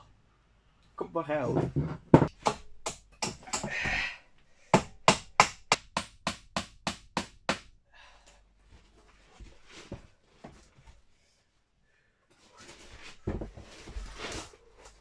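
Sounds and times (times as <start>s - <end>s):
hammer striking nails into wood: 2.2s - 4.0s, 4.7s - 7.7s
scrape: 8.8s - 10.6s, 12.4s - 15.0s.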